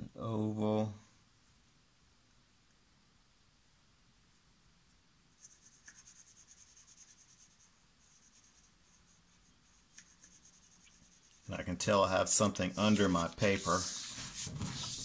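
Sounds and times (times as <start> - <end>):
pencil scratching on paper: 5.4 - 11.5, 12.6 - 15.0.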